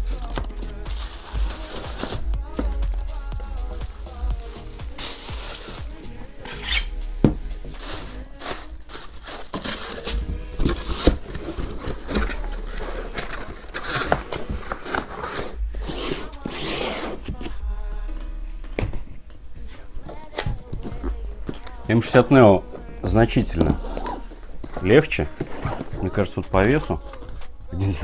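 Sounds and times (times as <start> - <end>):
cellophane bag crinkling: 0.0 - 2.3, 4.4 - 6.6, 7.7 - 15.6
cardboard packaging rustling: 0.0 - 17.6, 18.9 - 27.6.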